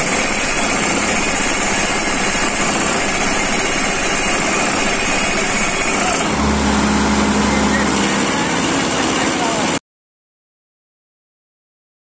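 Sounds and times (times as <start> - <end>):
hydraulic hammer pounding post: 0.0 - 9.6
tractor engine running: 0.0 - 9.8.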